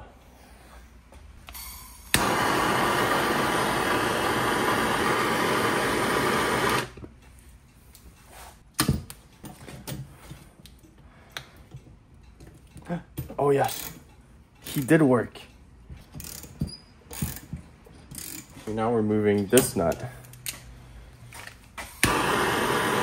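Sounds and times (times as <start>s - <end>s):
gas torch lighting click: 1.4s - 7.0s, 22.0s - 23.0s
gas torch flame hissing: 1.5s - 7.0s, 22.0s - 23.0s.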